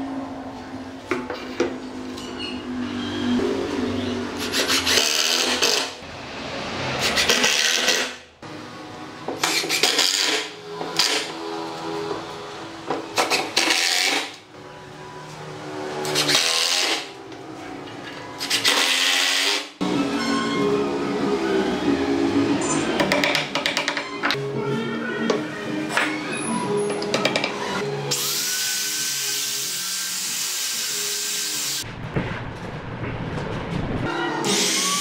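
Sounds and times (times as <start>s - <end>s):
background music: 18.0s - 31.8s.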